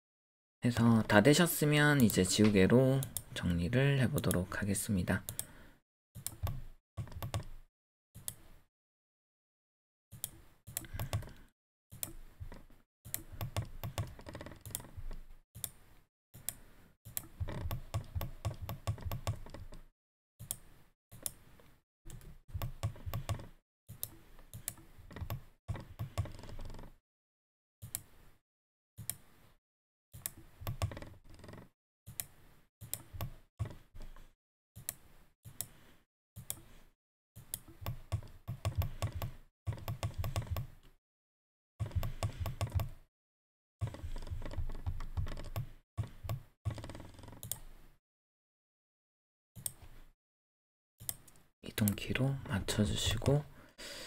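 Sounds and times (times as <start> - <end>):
mouse and keyboard clicking: 10.2 - 12.2, 13.1 - 15.8, 22.1 - 26.9, 37.4 - 40.9, 41.8 - 43.0, 43.8 - 47.6.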